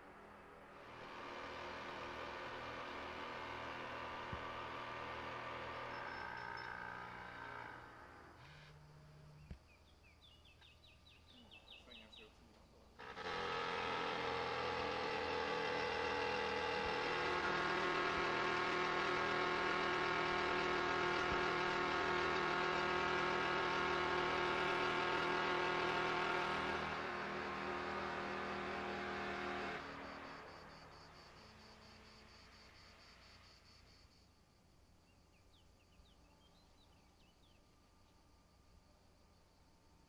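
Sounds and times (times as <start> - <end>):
engine running: 0.0 - 11.2, 12.9 - 33.4.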